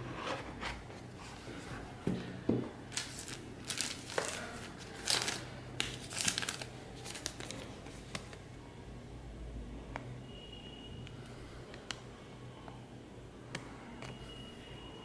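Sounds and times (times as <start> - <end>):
paper and plastic crinkling: 2.9 - 8.4.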